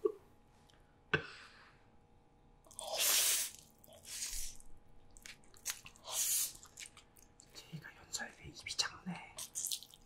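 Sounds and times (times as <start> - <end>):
person slurping noodles: 2.7 - 4.6, 5.8 - 6.9.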